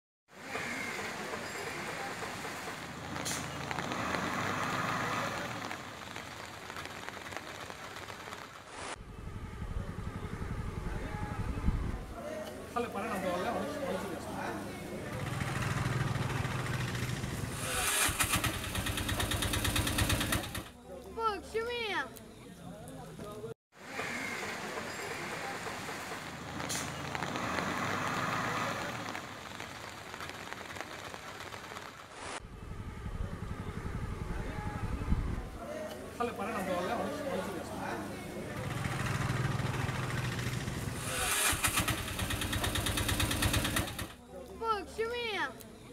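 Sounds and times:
motor vehicle passing: 0.4s - 7.3s, 8.9s - 12.2s, 13.0s - 20.7s, 23.9s - 30.8s, 32.4s - 44.2s
rain on wet street: 0.4s - 9.0s, 12.4s - 20.6s, 23.8s - 32.4s, 33.3s - 45.6s.

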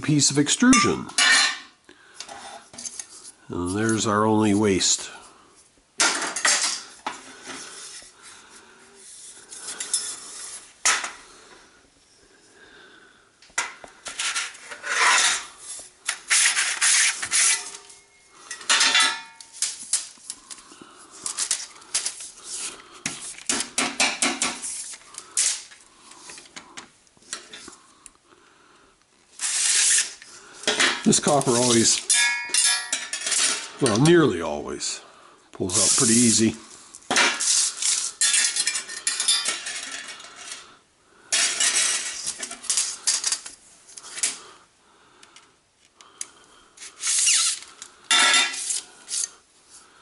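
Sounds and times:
metal scraping along a channel: 14.0s - 18.6s, 29.4s - 30.4s.

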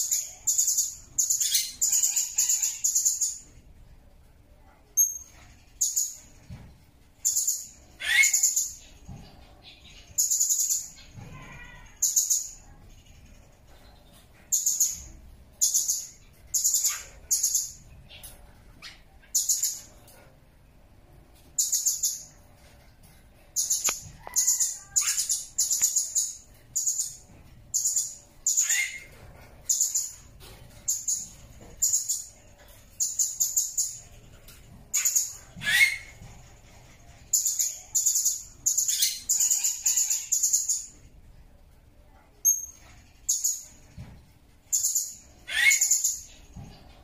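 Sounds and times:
parrot shrill calls: 8.0s - 8.6s, 28.5s - 29.1s, 35.0s - 36.2s, 45.4s - 46.2s.

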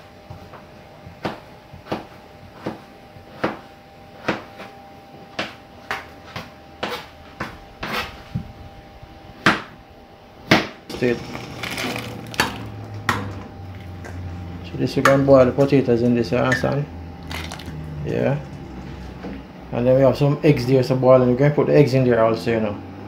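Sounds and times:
knife chopping on cutting board: 1.2s - 8.1s, 9.4s - 9.7s, 10.5s - 10.8s.

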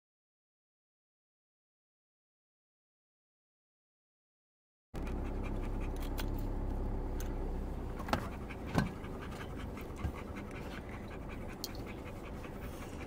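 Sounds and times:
dog panting: 5.0s - 6.4s, 7.8s - 13.0s
steady low rumble: 5.0s - 13.0s.

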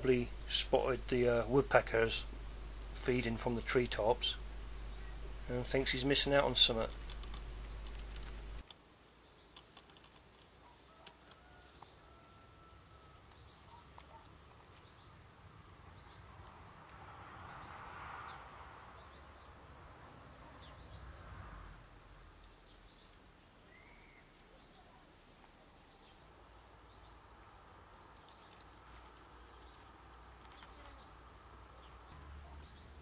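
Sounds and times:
soft hiss: 0.0s - 16.1s, 20.7s - 32.8s
faint scattered clicks: 4.3s - 12.0s, 27.9s - 32.2s.

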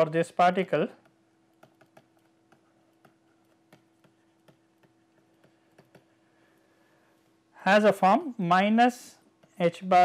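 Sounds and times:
faint steady hum: 0.0s - 10.0s
stylus tapping on pen tablet: 1.0s - 6.2s.

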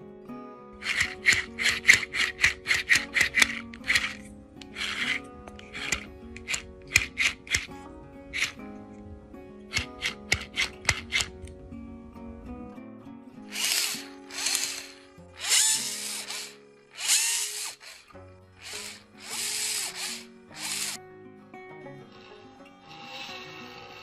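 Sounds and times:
sharp clicks: 0.8s - 8.6s, 9.7s - 11.6s, 13.5s - 21.0s
electric winch motor whirring: 0.8s - 11.6s, 13.4s - 21.0s, 22.0s - 24.0s.

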